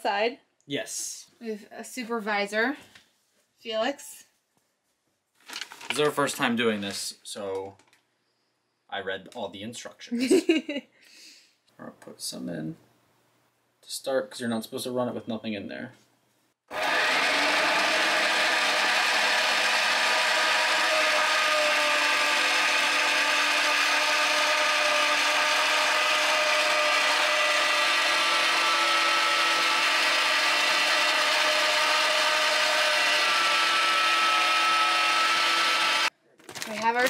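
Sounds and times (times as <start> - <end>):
meat grinder whining hum: 16.7 - 36.1.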